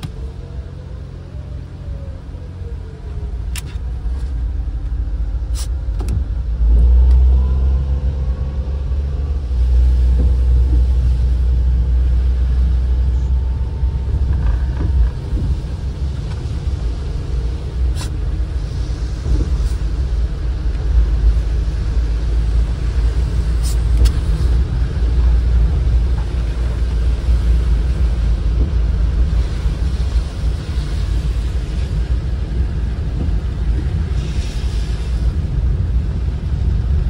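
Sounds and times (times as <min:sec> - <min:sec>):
van engine and road rumble: 0:00.0 - 0:37.0
tyre hiss on wet road: 0:05.5 - 0:05.8, 0:17.8 - 0:20.0, 0:23.4 - 0:24.6, 0:34.0 - 0:36.3.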